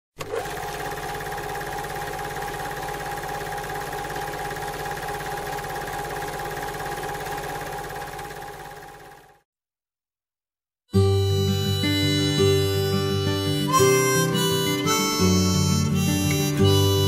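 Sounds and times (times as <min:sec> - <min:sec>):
film projector clatter: 0:00.2 - 0:09.4.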